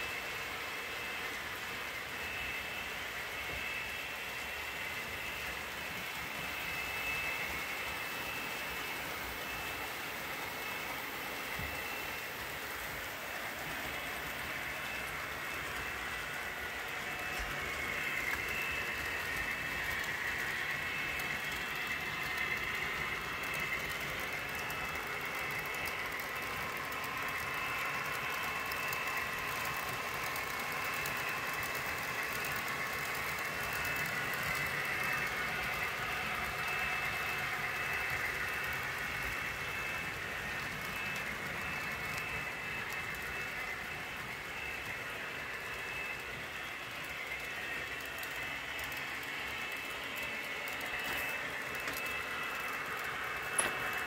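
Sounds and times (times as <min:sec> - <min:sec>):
cars rolling along track: 0:00.0 - 0:54.0
model train motors whirring: 0:00.0 - 0:54.0.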